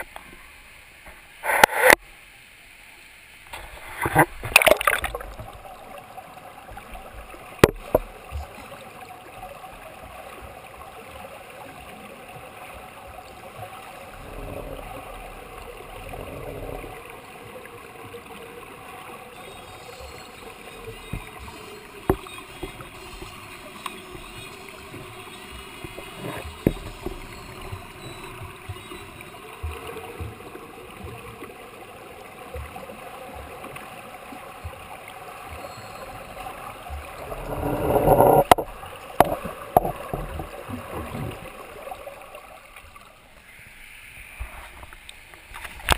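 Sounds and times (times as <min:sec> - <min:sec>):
churning water: 0:03.5 - 0:43.5
sharp underwater knocks: 0:07.6 - 0:08.1.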